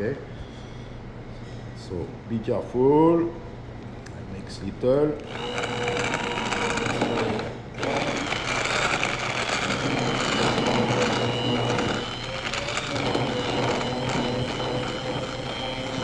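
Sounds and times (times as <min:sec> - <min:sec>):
hand blender motor whine: 0:05.2 - 0:16.0.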